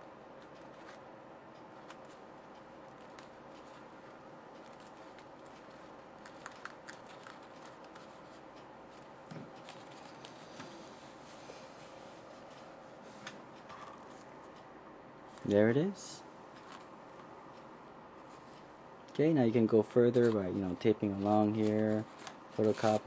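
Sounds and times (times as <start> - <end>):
faint hum: 0.0 - 23.0
aluminium foil crinkling: 21.2 - 23.0.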